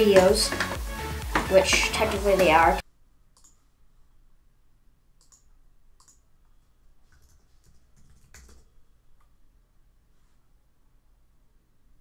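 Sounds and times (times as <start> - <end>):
computer keyboard typing clicks: 5.2 - 6.2, 7.1 - 8.7.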